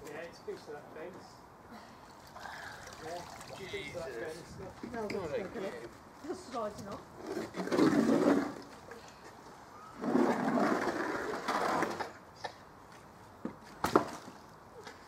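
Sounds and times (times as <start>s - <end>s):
water pouring and splashing: 2.1s - 4.1s.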